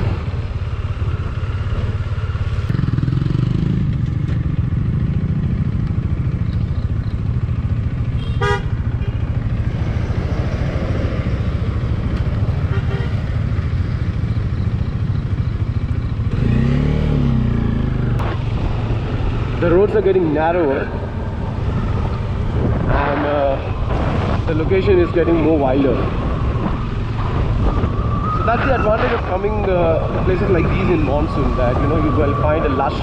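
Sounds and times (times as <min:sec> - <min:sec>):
motorcycle engine running: 0:00.2 - 0:19.6
horn toot: 0:08.2 - 0:09.2.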